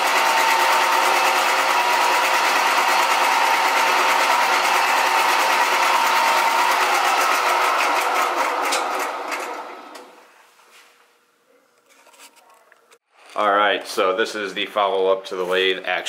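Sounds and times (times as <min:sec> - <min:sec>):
metal lathe running: 0:00.0 - 0:10.0
lathe spinning down: 0:00.0 - 0:10.1.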